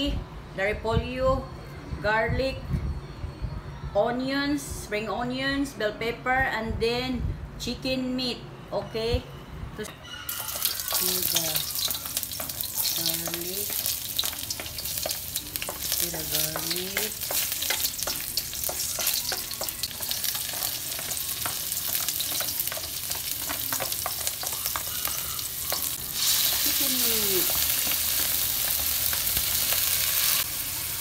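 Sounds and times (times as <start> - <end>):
wooden spatula stirring in a wok: 10.3 - 29.8
garlic sizzling in hot oil: 10.3 - 31.0.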